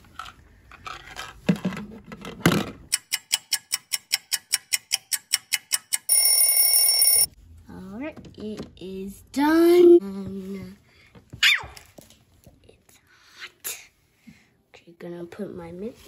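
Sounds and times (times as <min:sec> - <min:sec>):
kitchen timer ringing: 0:02.9 - 0:07.3
kitchen timer ticking: 0:02.9 - 0:07.3.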